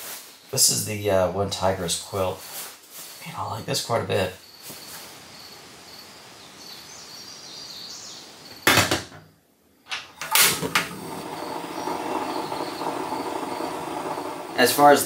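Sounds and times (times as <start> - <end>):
insects: 0.0 - 9.4, 10.2 - 15.0
stove ignition: 9.9 - 15.0
gas burner rushing: 10.2 - 15.0.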